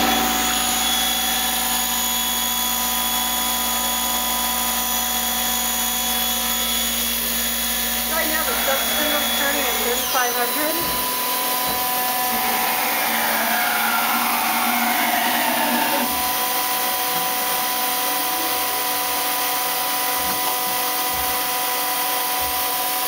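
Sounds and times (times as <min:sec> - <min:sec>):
falling machine whine: 0:00.0 - 0:21.1
lathe motors whirring: 0:00.0 - 0:23.0.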